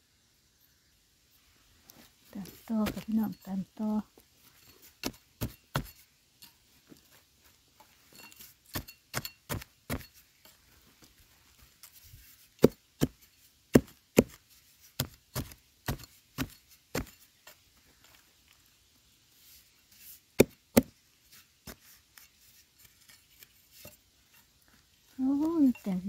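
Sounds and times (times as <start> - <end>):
digging blade chopping hard soil: 2.4 - 3.4, 4.8 - 6.0, 8.4 - 10.2, 12.6 - 17.3, 20.4 - 21.0.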